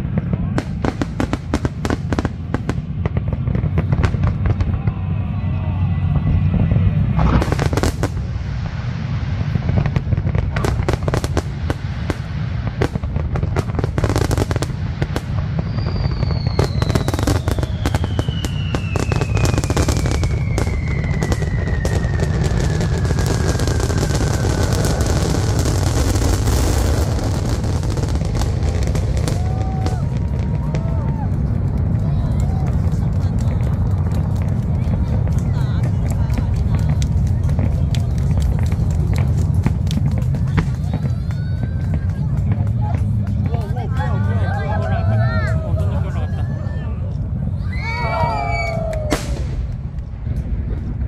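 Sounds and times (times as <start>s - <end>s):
fireworks bangs and crackling: 0.0s - 51.0s
low rumble: 0.0s - 51.0s
falling firework whistle: 13.6s - 31.5s, 47.6s - 49.7s.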